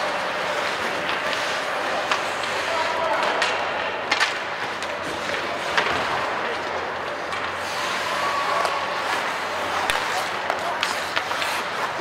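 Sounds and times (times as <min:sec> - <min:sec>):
arena hubbub: 0:00.0 - 0:12.0
skates hissing on ice: 0:07.4 - 0:12.0.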